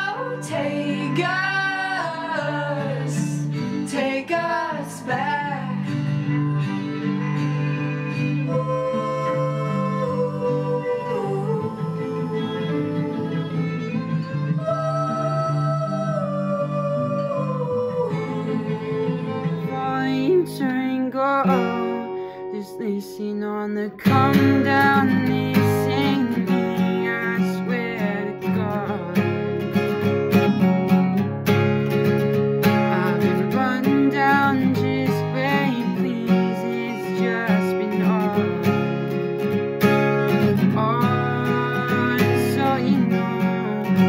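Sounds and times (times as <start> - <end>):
music performance: 0.0 - 22.7
person singing: 0.0 - 31.0, 31.8 - 44.0
acoustic guitar strumming: 0.0 - 44.0.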